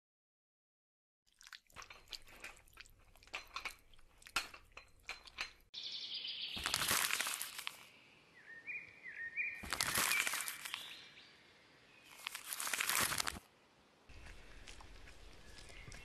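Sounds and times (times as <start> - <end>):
crisp crackling clicks: 6.6 - 7.9, 9.6 - 10.9, 12.1 - 13.4.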